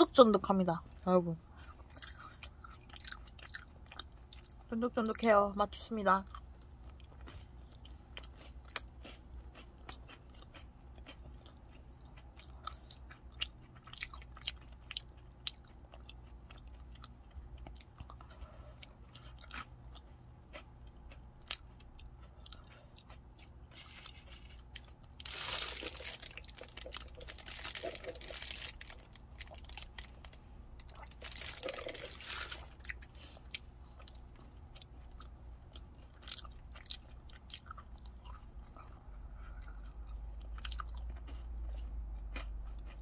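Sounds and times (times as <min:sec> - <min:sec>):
chewing cookie: 0:01.6 - 0:04.7, 0:06.2 - 0:43.0
wrapper rustling: 0:23.8 - 0:33.0.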